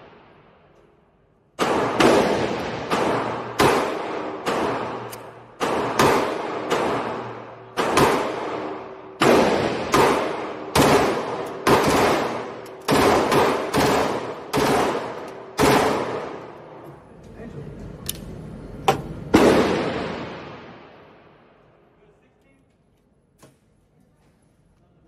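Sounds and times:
gunshot echoes off concrete walls: 0.0 - 16.8, 18.9 - 21.9
machine pistol firing shots: 1.6 - 16.6, 19.3 - 20.7.

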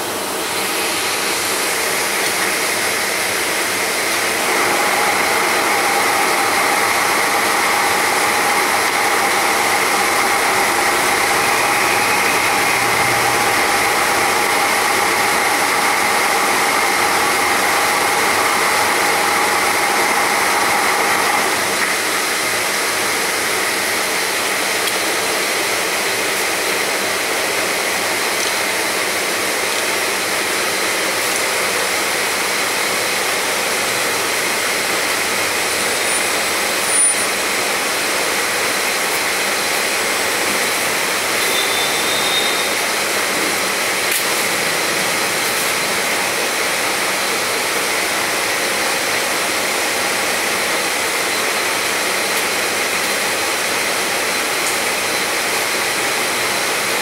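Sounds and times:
drill machine whine: 0.0 - 24.4, 31.7 - 54.6
drill machine motor whirring: 0.1 - 22.4.

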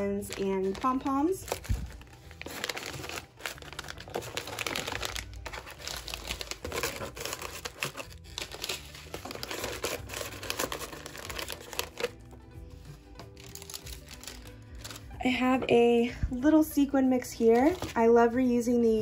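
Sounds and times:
plastic bags crinkling: 0.0 - 12.2, 13.2 - 15.2, 17.5 - 18.1
tissue paper rustling: 0.0 - 15.2, 17.5 - 18.0.

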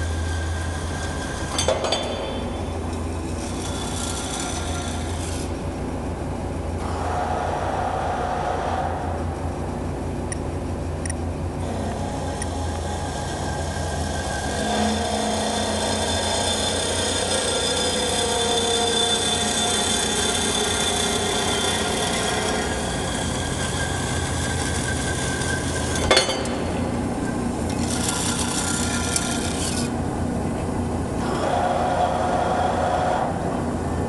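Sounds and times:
bandsaw cutting metal: 0.0 - 5.6, 11.6 - 30.0
machine hum: 0.0 - 34.0.

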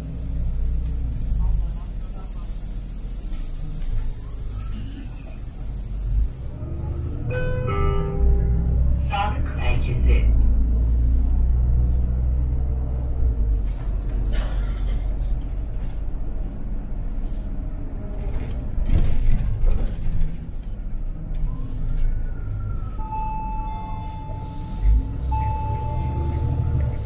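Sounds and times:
bus engine rumble: 0.0 - 27.0
compressed air hisses: 2.0 - 7.2
electronic beep: 23.0 - 27.0.

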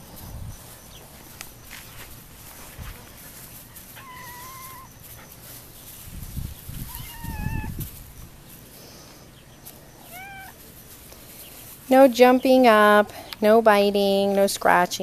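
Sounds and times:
puppy whining: 3.9 - 5.0, 6.9 - 7.8, 10.1 - 10.6.

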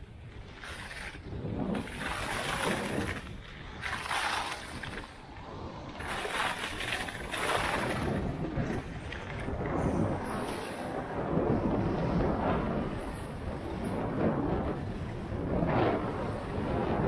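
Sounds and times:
skis scraping over snow: 0.0 - 17.0
wind rumbling on microphone: 0.0 - 17.0.

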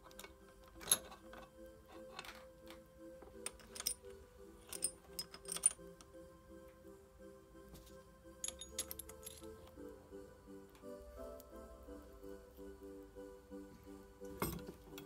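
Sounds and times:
metal parts clinking: 0.0 - 6.0, 8.4 - 9.6
quiet background music: 0.0 - 15.0.

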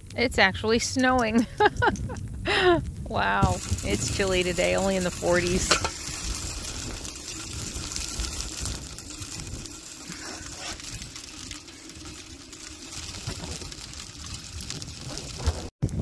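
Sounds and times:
snow pellets pattering: 3.1 - 15.7.

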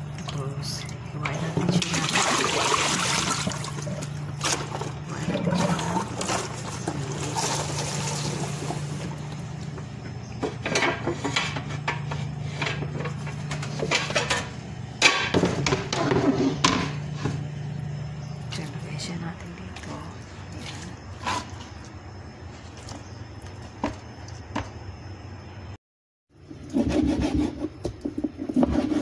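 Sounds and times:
water splashing in a bowl: 0.0 - 9.4.

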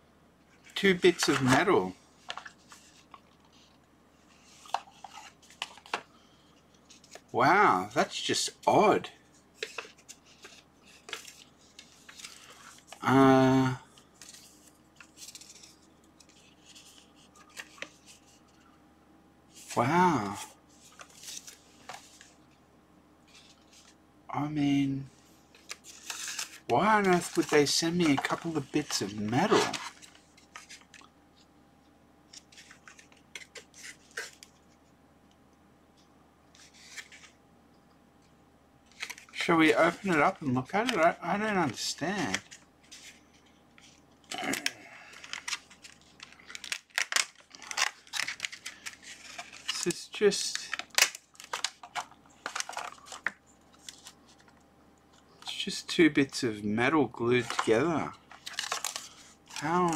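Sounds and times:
paper leaflet rustling: 9.6 - 13.1, 25.5 - 31.1, 57.2 - 59.9
plastic packaging crackling: 25.6 - 31.1, 44.3 - 54.6, 57.4 - 59.9.

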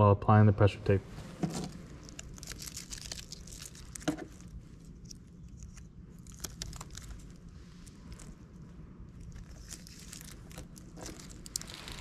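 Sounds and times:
tape crinkling: 1.5 - 12.0
tape peeling off roll: 1.5 - 12.0.

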